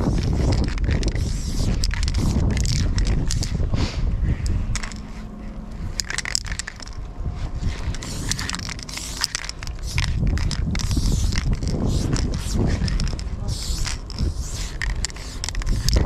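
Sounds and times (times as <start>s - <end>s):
spray-paint can hissing: 0.0s - 3.6s, 7.6s - 16.0s.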